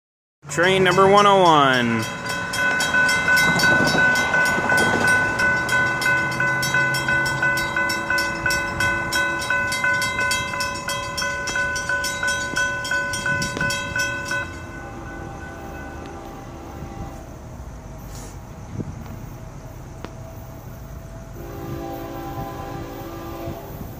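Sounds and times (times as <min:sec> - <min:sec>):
railroad crossing bell ringing: 0:00.4 - 0:17.5.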